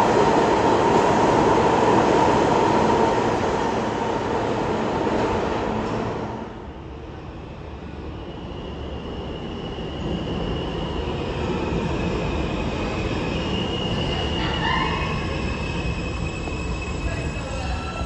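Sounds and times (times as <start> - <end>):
subway train rumbling: 0.0 - 18.0.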